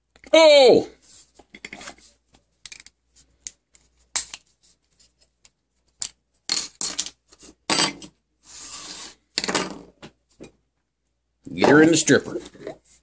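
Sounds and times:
model parts clicking and clacking: 2.6 - 3.6.

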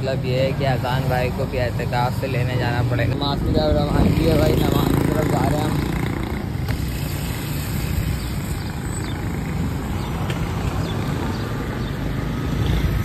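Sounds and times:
motorcycle engine and road rumble: 0.0 - 13.0
motorcycles passing: 0.0 - 13.0
wind noise on microphone: 3.1 - 4.7.

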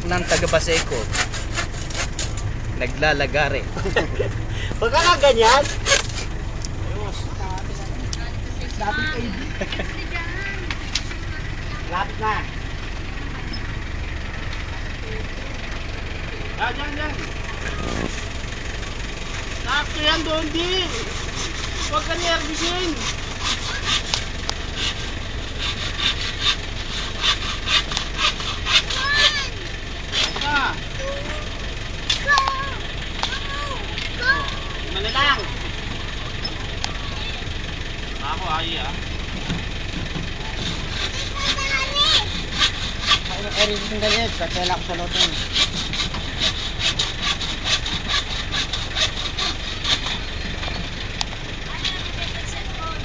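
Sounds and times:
hand saw cutting bamboo: 0.0 - 2.5, 3.8 - 6.3, 19.7 - 31.3, 40.4 - 50.8.

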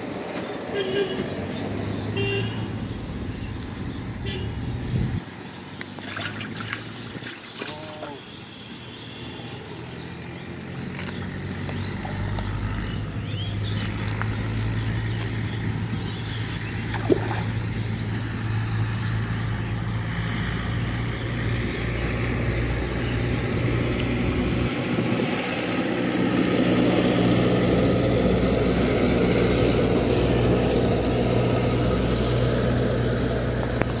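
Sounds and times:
engine humming: 0.0 - 34.0.

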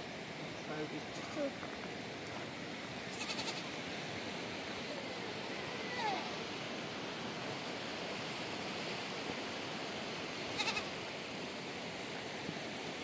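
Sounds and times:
steady background hiss: 0.0 - 13.0
livestock bleat: 3.1 - 3.7, 10.6 - 10.9.

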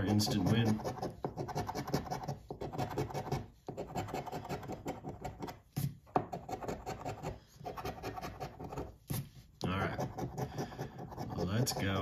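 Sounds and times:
coin scratching lottery ticket: 0.0 - 5.5.

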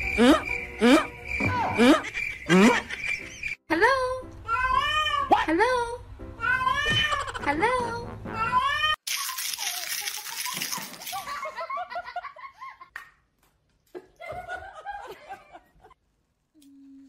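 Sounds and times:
person laughing: 1.8 - 3.2.

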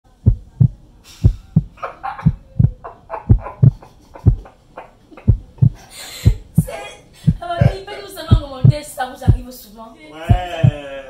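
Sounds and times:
heartbeat thumps: 0.1 - 4.5, 5.2 - 9.5, 10.3 - 10.8.

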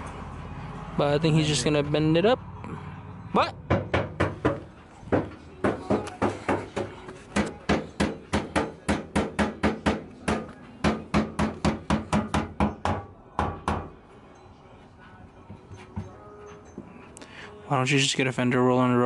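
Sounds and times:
hammer striking sheet metal: 5.2 - 13.9.

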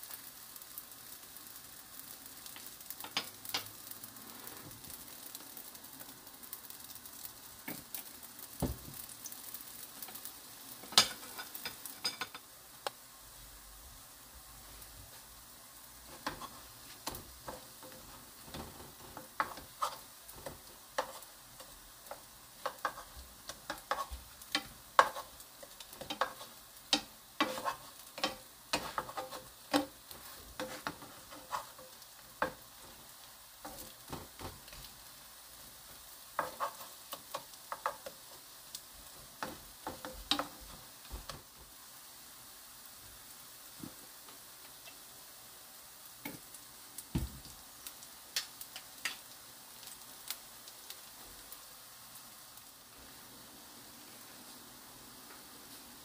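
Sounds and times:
zucchini sizzling in a frying pan: 0.0 - 56.0
spatulas scraping a pan: 10.8 - 12.4, 16.1 - 34.9, 36.4 - 38.2.

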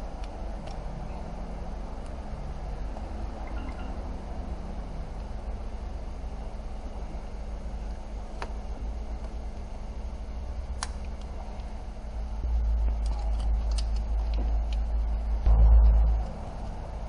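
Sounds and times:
steady low hum: 0.0 - 17.0
low rumble: 11.4 - 17.0.

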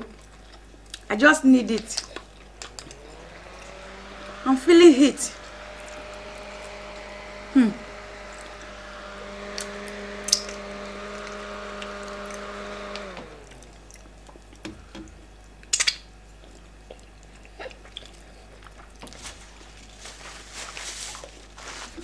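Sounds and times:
eating and chewing: 0.0 - 3.9, 8.2 - 8.8, 9.6 - 22.0
handheld fan whirring: 1.2 - 15.1.

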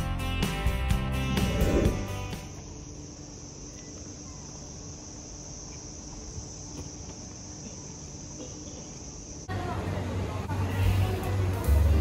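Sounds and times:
insect chirring: 1.2 - 9.5.

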